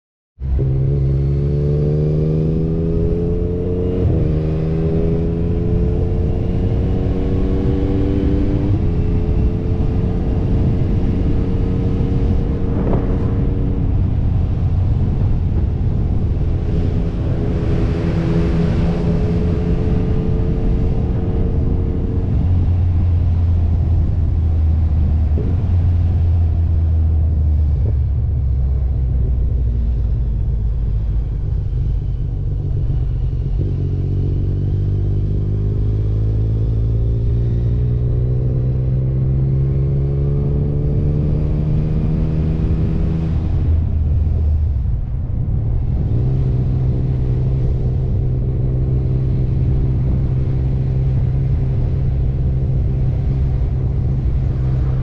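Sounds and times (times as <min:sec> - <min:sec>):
wind rumble on microphone: 0:00.4 - 0:55.0
motorcycle engine: 0:00.6 - 0:24.1.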